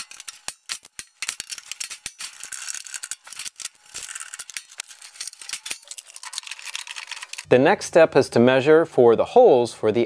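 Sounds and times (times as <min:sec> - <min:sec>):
small clicks and rattling of wires: 0:00.0 - 0:07.5.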